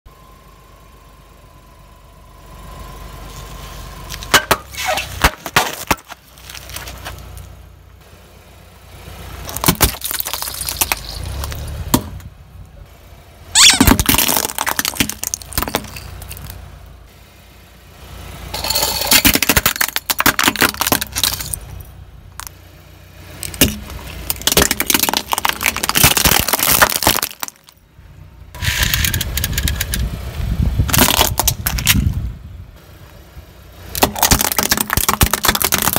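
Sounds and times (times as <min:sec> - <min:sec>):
low car engine rumble: 0:00.1 - 0:35.9
tyre crushing objects: 0:04.2 - 0:07.2, 0:13.6 - 0:16.5, 0:23.4 - 0:27.7, 0:34.0 - 0:35.9.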